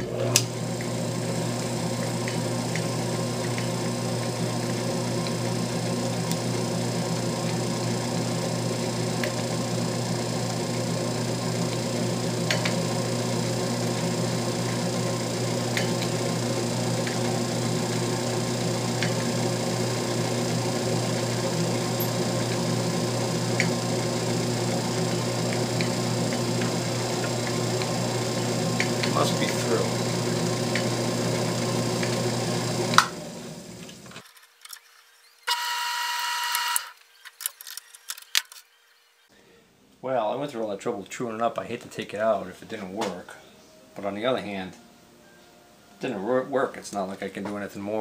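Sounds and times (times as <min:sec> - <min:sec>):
lathe motor humming: 0:00.0 - 0:34.2.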